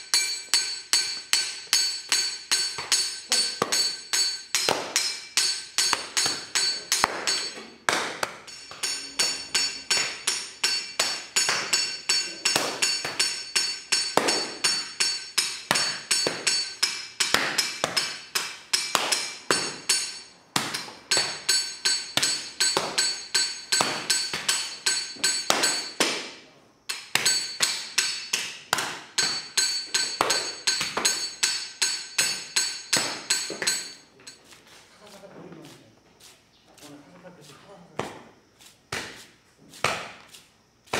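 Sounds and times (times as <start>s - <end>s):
wooden paddles beating clay: 0.6s - 26.3s.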